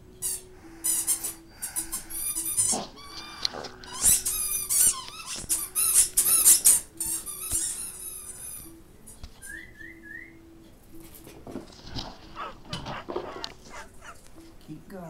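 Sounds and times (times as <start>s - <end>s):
squeaky toy squeaking: 0.2s - 8.8s, 12.3s - 14.2s
dog chewing: 11.7s - 14.5s.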